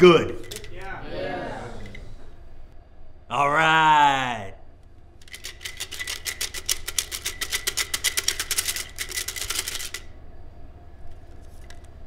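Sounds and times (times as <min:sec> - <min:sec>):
wooden sticks rattling in glass jar: 0:00.4 - 0:00.8, 0:05.2 - 0:10.1.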